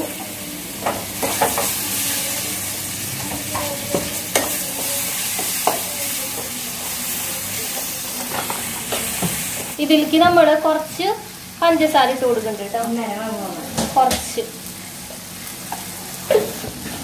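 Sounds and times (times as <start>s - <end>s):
masala sizzling in a pan: 0.0s - 17.0s.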